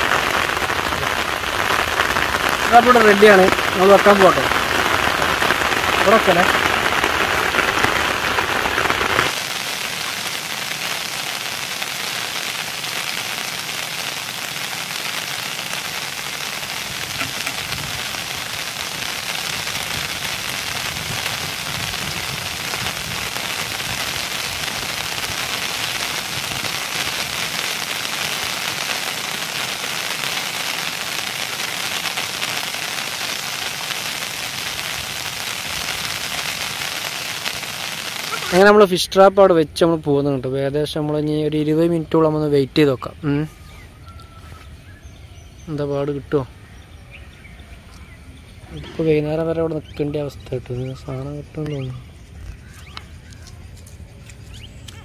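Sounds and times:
water hissing: 0:00.0 - 0:38.8
faint crackles: 0:00.0 - 0:45.0, 0:45.7 - 0:55.0.

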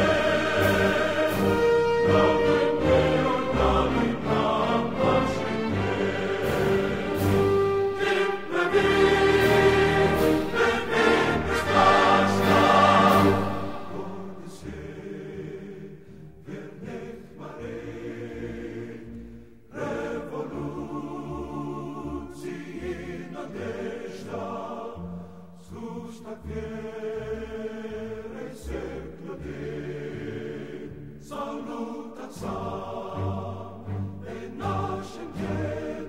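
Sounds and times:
choir singing sustained chords: 0:00.0 - 0:36.0.

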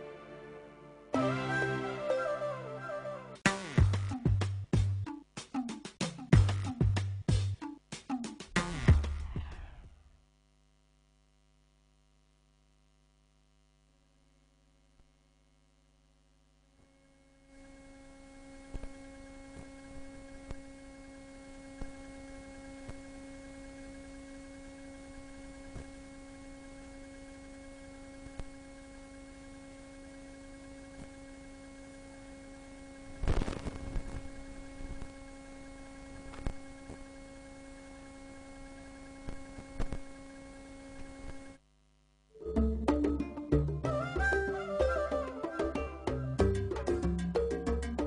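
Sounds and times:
electrical hum: 0:08.6 - 0:48.0
clicks and crackle: 0:33.2 - 0:35.2, 0:36.2 - 0:37.0, 0:39.2 - 0:40.2.

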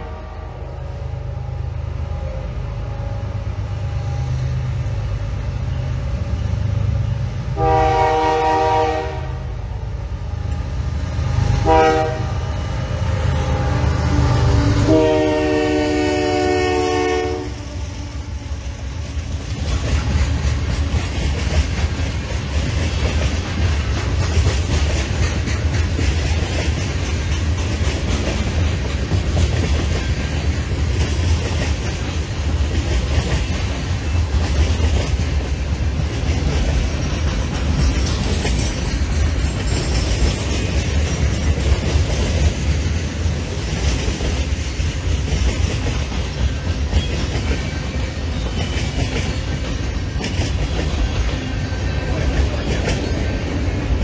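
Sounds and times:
train horn blasts: 0:00.0 - 0:01.4, 0:07.5 - 0:09.8, 0:11.5 - 0:12.6, 0:13.2 - 0:18.6
freight cars rumbling: 0:08.6 - 0:54.0.

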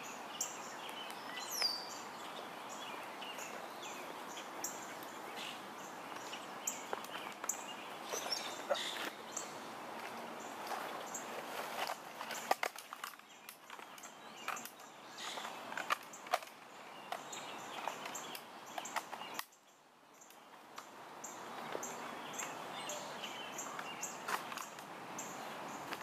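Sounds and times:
small bird chirping: 0:00.0 - 0:09.6
outdoor ambience: 0:00.0 - 0:26.0
rifle handling clicks and rustles: 0:10.0 - 0:19.6, 0:23.7 - 0:24.9.

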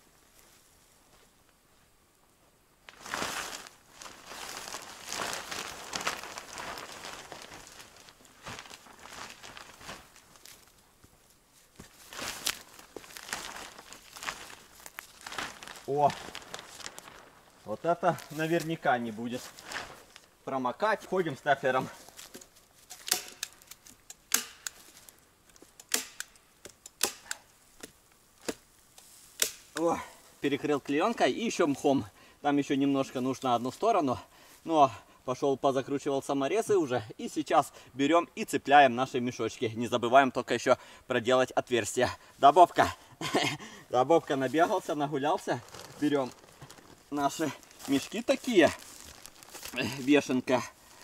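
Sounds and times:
plastic sheeting crinkling: 0:02.8 - 0:10.8, 0:11.6 - 0:24.0, 0:42.6 - 0:51.0.

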